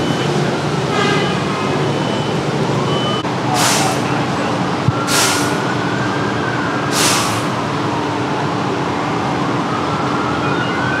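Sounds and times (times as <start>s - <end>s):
steady engine hum: 0.0s - 11.0s
street traffic: 0.0s - 11.0s
short hisses: 3.6s - 4.0s, 5.1s - 5.6s, 6.9s - 7.5s
siren wailing: 4.0s - 7.7s, 9.0s - 11.0s.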